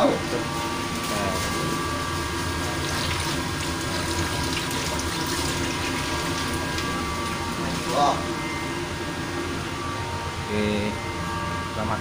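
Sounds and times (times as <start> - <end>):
low machinery hum: 0.0 - 12.0
tap water running into metal sink: 2.8 - 7.4.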